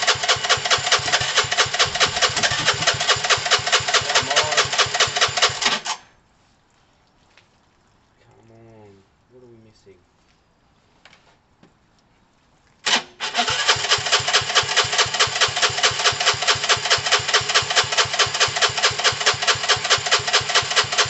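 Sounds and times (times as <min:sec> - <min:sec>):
motorcycle engine starting and running: 0:00.0 - 0:06.0, 0:12.9 - 0:21.0.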